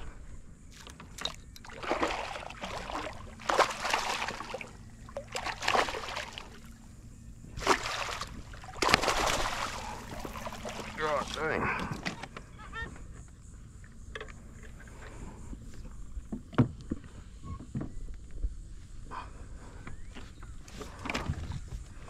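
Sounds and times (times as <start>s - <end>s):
fish thrashing and splashing: 1.2s - 6.8s, 7.6s - 11.5s
net sweeping through water: 1.8s - 4.7s, 5.3s - 6.5s, 7.6s - 11.0s.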